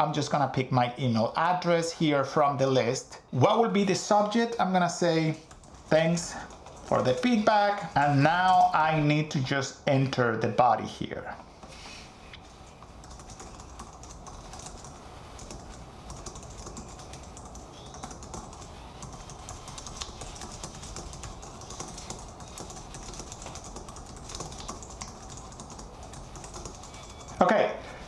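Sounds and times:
typing on computer keyboard: 5.4 - 7.2, 12.7 - 27.4.

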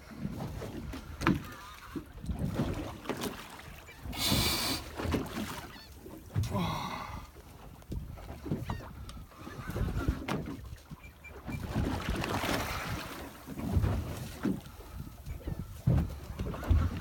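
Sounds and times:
water sloshing against boat hull: 0.0 - 17.0
wind on microphone: 7.9 - 10.4, 11.5 - 17.0.

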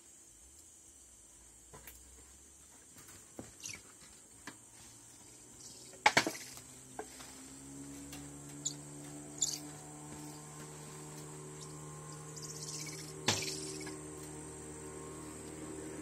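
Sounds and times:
low steady hum: 0.0 - 16.0
monkeys chirping: 5.2 - 6.8, 8.6 - 10.5, 11.3 - 14.2
high-pitched insect drone: 7.6 - 16.0.

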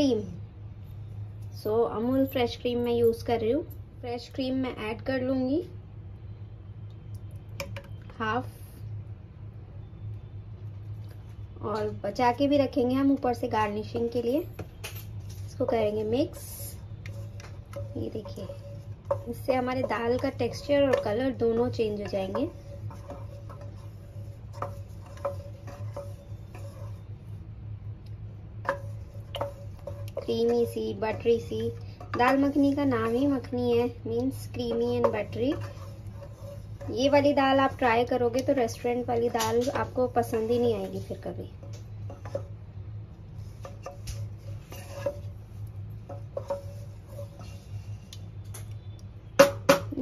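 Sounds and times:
low steady hum: 0.0 - 50.0
spatula stirring thick dal: 9.8 - 50.0
spatula knocking metal pot: 17.0 - 27.0, 28.6 - 33.6, 34.2 - 40.6, 49.3 - 50.0.

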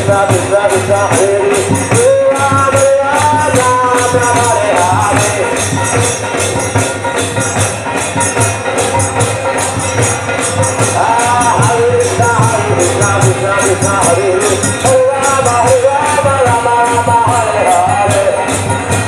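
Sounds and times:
crowd chanting a devotional song: 0.0 - 19.0
jingling hand percussion: 0.0 - 19.0
people clapping: 1.1 - 7.4.

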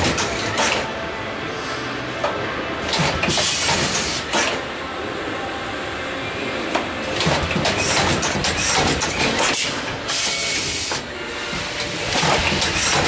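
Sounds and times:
cartoning machine clattering: 0.0 - 0.9, 2.8 - 4.7, 6.7 - 13.0.

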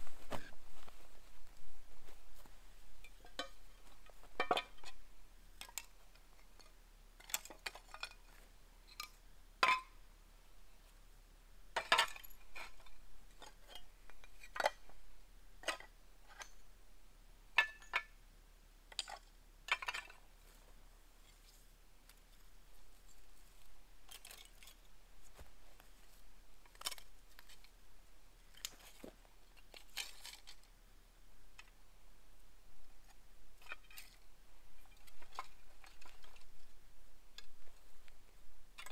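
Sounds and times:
clay roof tiles clinking: 3.0 - 10.0, 11.8 - 15.0, 17.6 - 18.2, 18.9 - 20.3, 23.0 - 25.5, 33.6 - 37.9.

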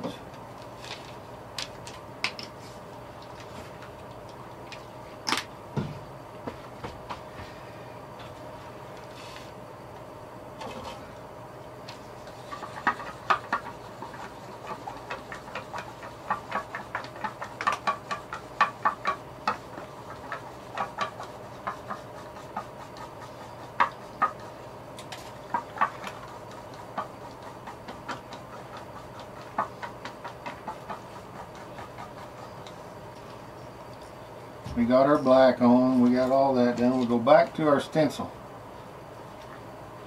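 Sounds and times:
faint steady hum: 0.0 - 40.0
pen ticking and tapping on paper: 12.4 - 24.6, 25.4 - 32.8.

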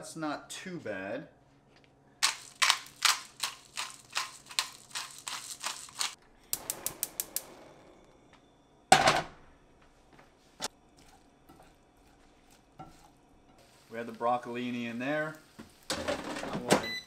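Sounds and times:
spice grinder twisting: 2.2 - 7.0
gas burner igniting: 5.9 - 8.3, 12.8 - 16.4
gas stove igniter clicking: 6.5 - 7.5.

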